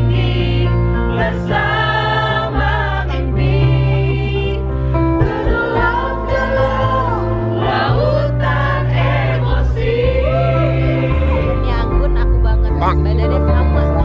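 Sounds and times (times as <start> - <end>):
crowd singing along: 0.0 - 12.6
steady bass notes: 0.0 - 14.0.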